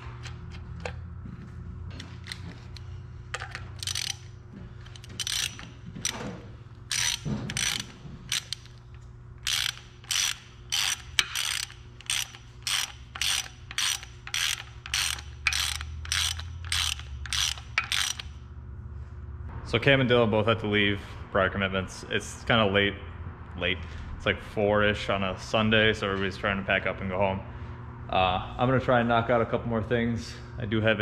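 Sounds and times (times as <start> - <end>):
hand ratchet clicking: 2.2 - 18.4.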